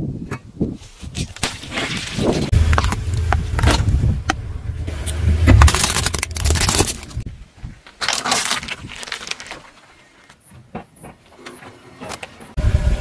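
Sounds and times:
low tyre rumble: 1.8s - 7.4s, 12.3s - 13.0s
tyre crushing plastic packs: 5.4s - 7.2s, 8.0s - 9.8s
plastic cups bursting: 5.5s - 7.2s.

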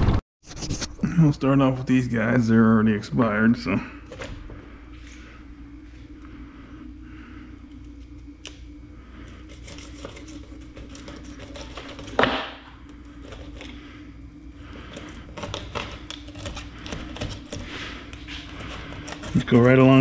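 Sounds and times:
steady low hum: 0.1s - 20.0s
knife scraping fish scales: 9.3s - 12.2s, 13.2s - 13.8s.

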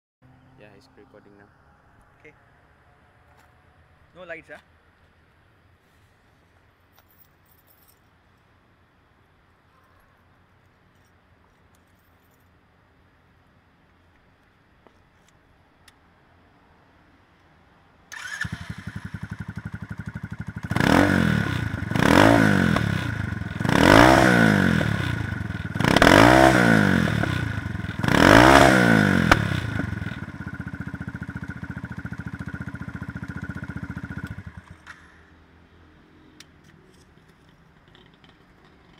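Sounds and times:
motorcycle engine idling and revving: 18.1s - 38.9s.

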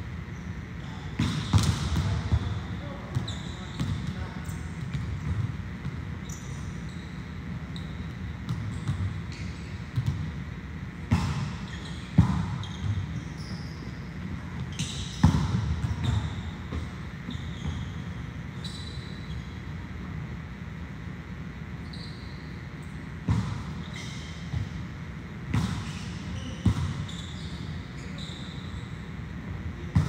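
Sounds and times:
gym hall noise: 0.0s - 30.0s
volleyballs striking floor: 1.2s - 2.6s.

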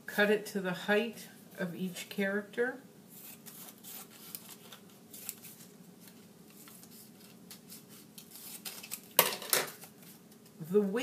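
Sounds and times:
scissors snipping paper: 6.6s - 9.1s.

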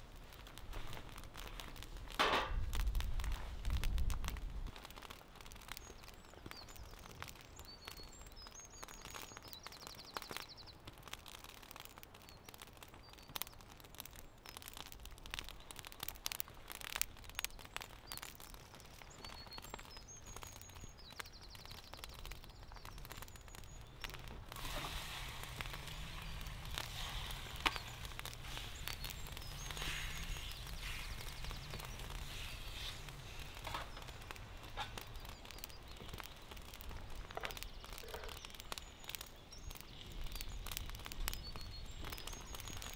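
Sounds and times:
steady hiss with low hum: 0.0s - 6.7s, 23.6s - 42.9s
crackles and sharp clicks: 0.0s - 42.9s
faint bird chirps: 5.7s - 10.8s, 17.3s - 42.9s.

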